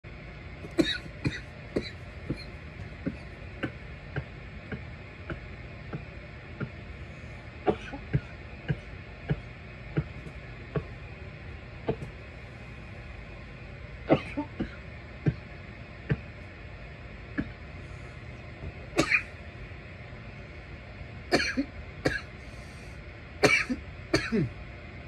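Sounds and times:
person coughing: 0.6s - 3.8s, 7.6s - 9.4s, 14.0s - 15.4s, 19.0s - 19.4s, 21.3s - 22.3s, 23.4s - 24.6s.

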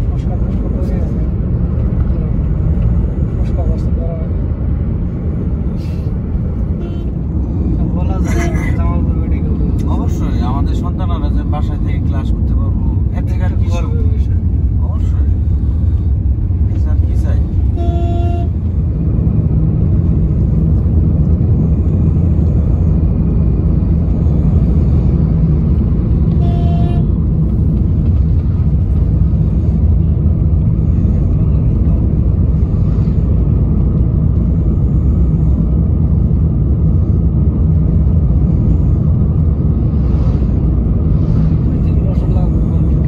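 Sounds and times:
car engine and road rumble: 0.0s - 43.0s
vehicle horn toot: 6.8s - 7.2s, 17.7s - 18.6s, 26.3s - 27.1s.

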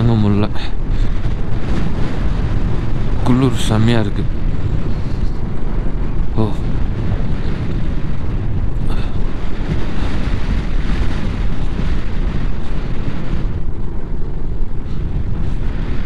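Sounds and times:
road noise: 0.0s - 16.0s
wind buffeting microphone: 0.0s - 16.0s.

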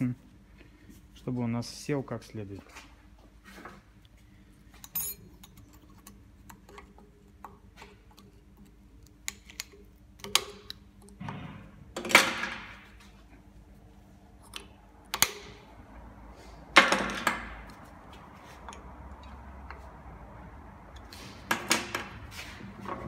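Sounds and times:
metal tools clinking: 4.8s - 6.0s.

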